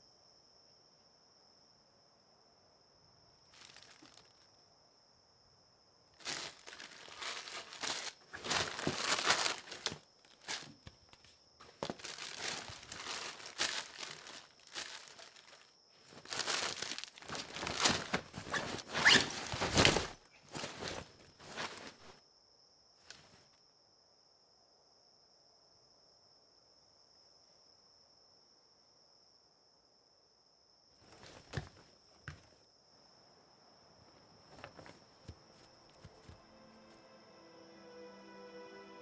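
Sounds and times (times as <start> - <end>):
crickets chirring: 0.0 - 38.9
rustling and crinkling: 3.4 - 4.6, 6.2 - 22.2, 23.0 - 23.5, 31.0 - 32.6, 34.1 - 36.4.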